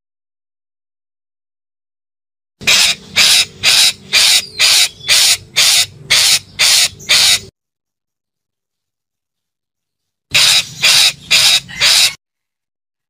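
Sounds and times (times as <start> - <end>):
parakeet harsh grating calls: 2.6 - 7.5, 10.3 - 12.2.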